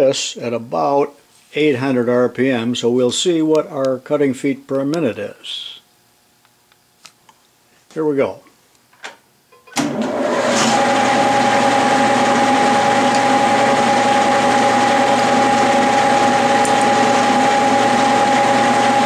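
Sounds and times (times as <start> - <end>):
lathe whine and motor hum: 9.8 - 19.0.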